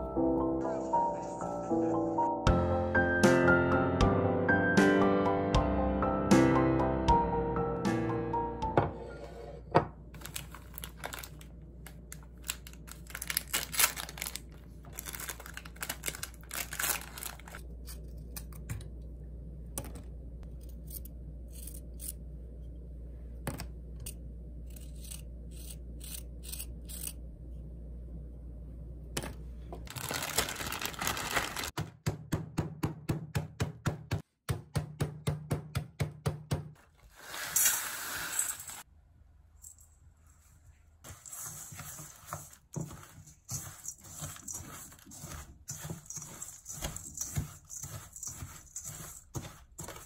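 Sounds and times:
cookies rustling into plastic bag: 0:10.2 - 0:17.6, 0:29.9 - 0:31.8, 0:41.1 - 0:50.0
plastic wrappers crinkling and tearing: 0:10.2 - 0:17.6, 0:29.9 - 0:31.8.

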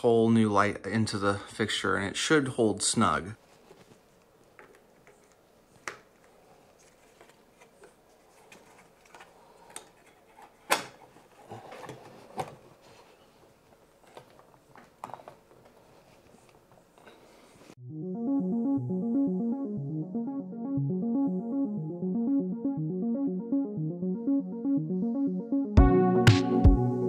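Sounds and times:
faint handling noise: 0:03.4 - 0:17.8.

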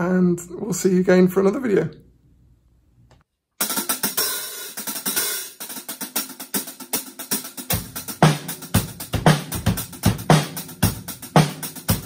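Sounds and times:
hi-hats played with drumsticks: 0:03.6 - 0:12.0.

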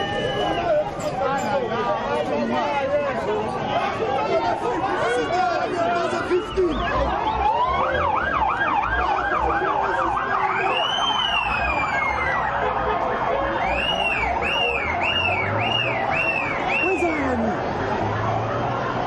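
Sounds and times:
police siren: 0:00.0 - 0:01.0, 0:02.8 - 0:19.0
crowd chatter: 0:00.0 - 0:19.0.

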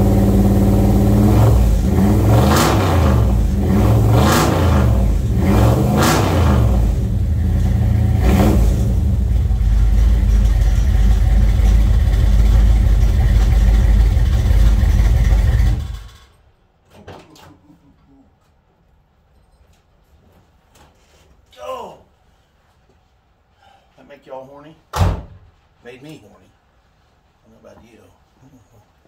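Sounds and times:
car engine revving and idling: 0:00.0 - 0:16.1.

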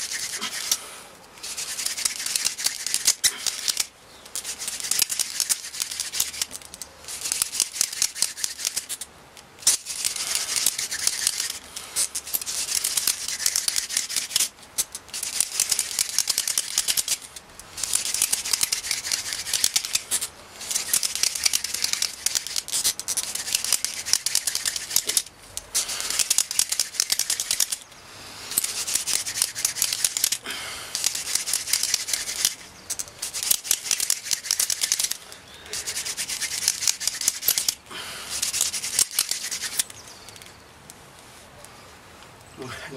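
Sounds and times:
wooden spindle grinding rasp: 0:28.6 - 0:30.4.

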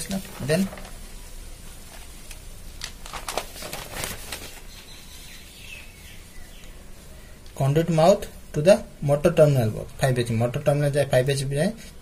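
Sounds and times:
paper pages turning: 0:00.0 - 0:01.0, 0:01.9 - 0:04.8.

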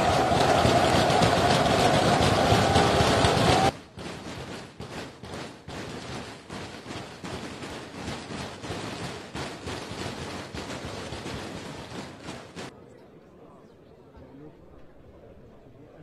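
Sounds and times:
crowd cheering: 0:00.0 - 0:04.6
crackly crowd noise: 0:00.0 - 0:16.0.

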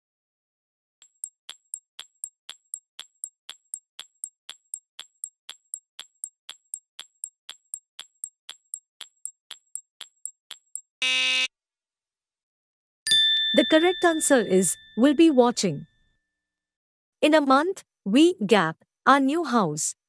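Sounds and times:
clock ticks: 0:01.0 - 0:10.9.

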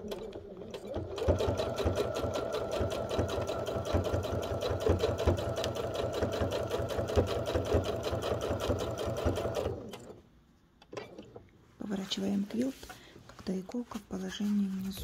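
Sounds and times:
sewing machine stitching: 0:00.0 - 0:10.2.

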